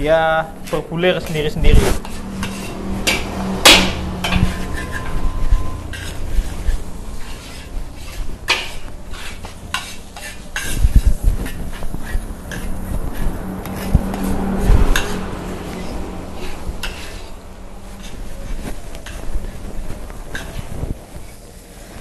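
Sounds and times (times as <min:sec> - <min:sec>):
metal spatula scraping a wok: 0:00.0 - 0:22.0
rice sizzling: 0:04.2 - 0:13.9, 0:14.6 - 0:22.0.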